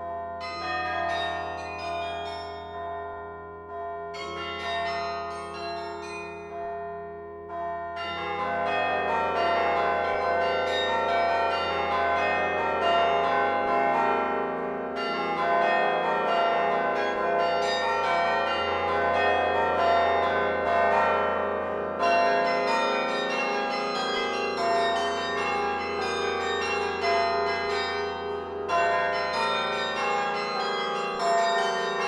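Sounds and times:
carillon bells ringing: 0:00.0 - 0:03.2, 0:04.1 - 0:06.8, 0:22.0 - 0:32.0.

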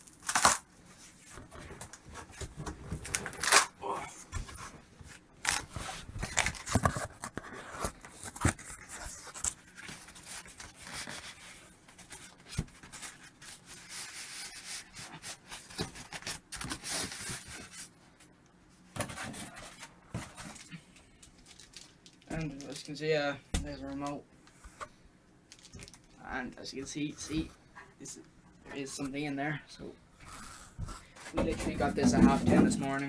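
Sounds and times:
cardboard and foam rustling: 0:00.1 - 0:18.0, 0:18.9 - 0:20.7.

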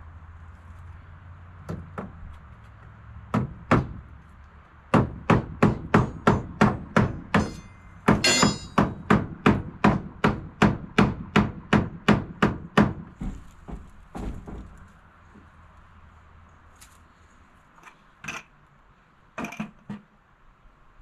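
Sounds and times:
hammer striking wood: 0:01.7 - 0:02.2, 0:03.3 - 0:04.0, 0:04.9 - 0:14.8
brief metallic ring: 0:07.5 - 0:08.8.

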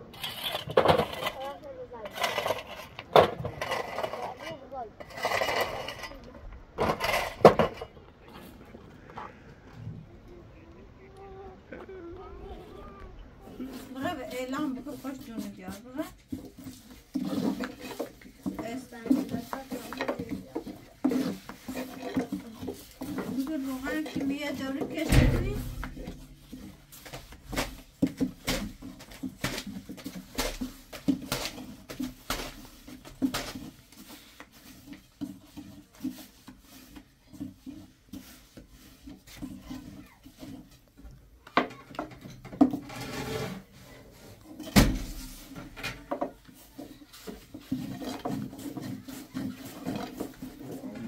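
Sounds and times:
objects knocking and clattering: 0:00.1 - 0:09.8, 0:13.5 - 0:51.0
loud thumps: 0:25.0 - 0:26.8.

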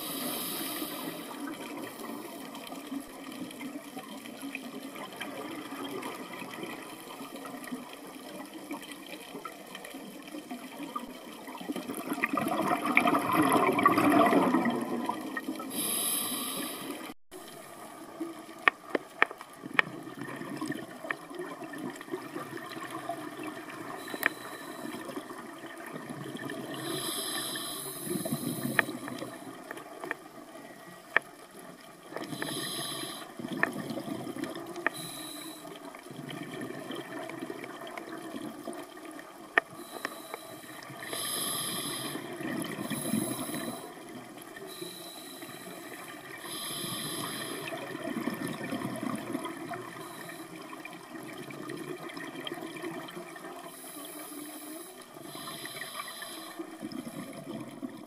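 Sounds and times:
regulator breathing hiss: 0:00.0 - 0:02.5, 0:15.7 - 0:17.1, 0:26.7 - 0:29.4, 0:32.2 - 0:33.4, 0:34.9 - 0:35.8, 0:39.8 - 0:42.3, 0:42.9 - 0:44.0, 0:44.7 - 0:47.8, 0:50.0 - 0:50.5, 0:53.7 - 0:56.8
gurgling exhaled bubbles: 0:11.6 - 0:15.8, 0:19.6 - 0:30.0, 0:32.2 - 0:34.9, 0:40.9 - 0:44.6, 0:45.9 - 0:53.7, 0:56.6 - 0:58.0.

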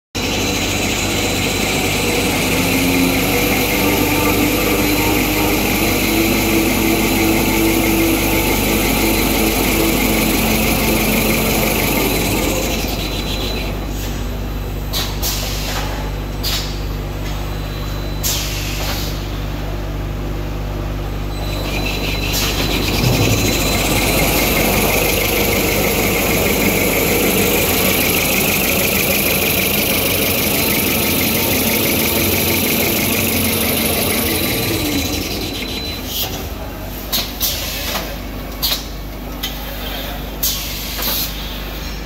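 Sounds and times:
electric motor hum: 0:00.2 - 0:13.8, 0:21.7 - 0:35.8.

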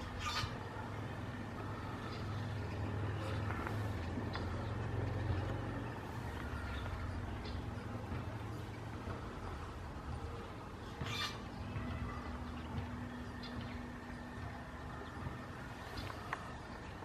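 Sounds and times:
faint bird chirps: 0:00.0 - 0:00.8, 0:06.1 - 0:16.3
distant road traffic rumble: 0:00.0 - 0:17.0.

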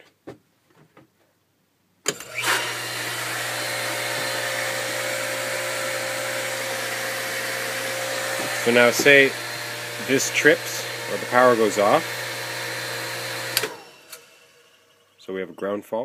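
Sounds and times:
pool pump motor humming: 0:02.1 - 0:15.5
motor contactor click: 0:13.5 - 0:14.3.

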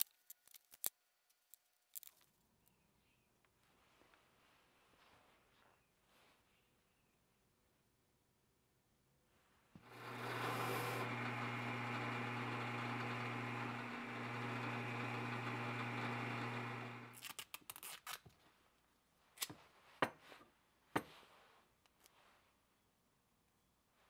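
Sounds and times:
small parts clicking: 0:00.0 - 0:02.7
drill press motor humming: 0:09.8 - 0:17.2.

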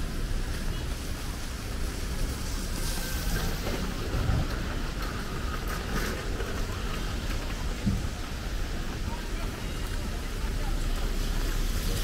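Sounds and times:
rain hiss: 0:00.0 - 0:05.4, 0:08.0 - 0:12.0
traffic: 0:00.0 - 0:12.0.

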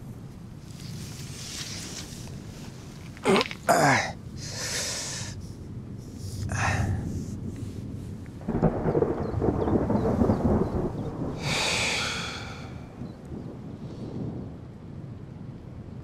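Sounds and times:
low rumble: 0:02.2 - 0:15.2
man breathing hard: 0:03.7 - 0:05.4, 0:06.4 - 0:07.3, 0:11.4 - 0:12.9.

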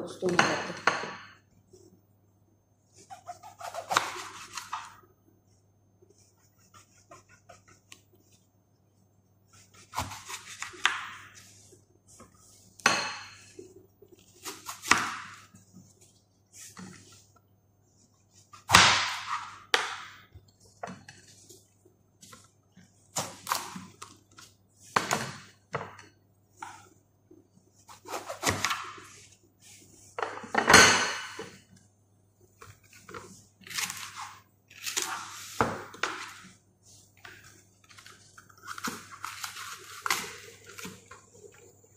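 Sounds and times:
knife chopping on cutting board: 0:03.1 - 0:05.0, 0:09.6 - 0:11.3, 0:14.4 - 0:15.5.

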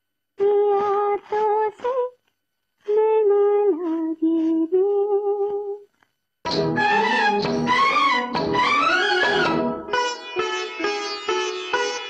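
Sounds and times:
sitar and orchestra music: 0:06.5 - 0:12.0.

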